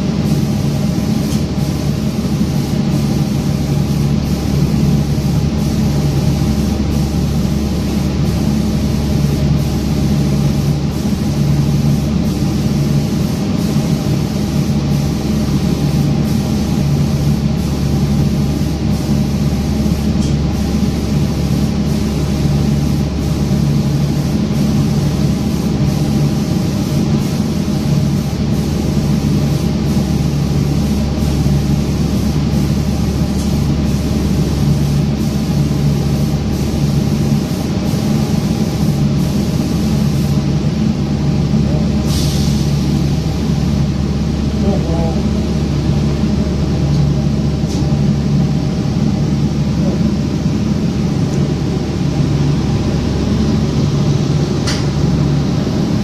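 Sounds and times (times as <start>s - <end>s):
spraying machine humming: 0.0s - 56.0s
spray hissing: 0.1s - 40.5s, 42.0s - 43.4s.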